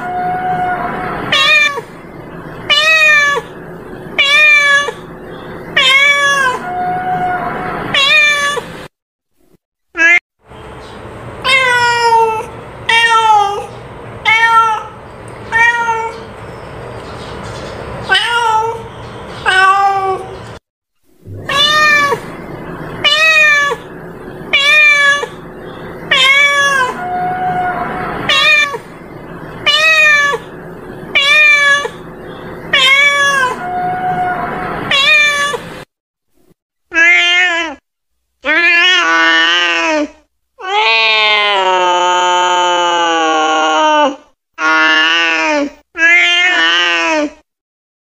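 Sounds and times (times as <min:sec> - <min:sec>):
cat meowing: 0:00.0 - 0:01.9, 0:02.7 - 0:03.5, 0:04.2 - 0:05.1, 0:05.8 - 0:08.7, 0:11.4 - 0:16.3, 0:18.1 - 0:20.4, 0:21.3 - 0:25.4, 0:26.1 - 0:28.9, 0:29.6 - 0:30.5, 0:31.1 - 0:32.0, 0:32.7 - 0:35.7, 0:46.0 - 0:47.0.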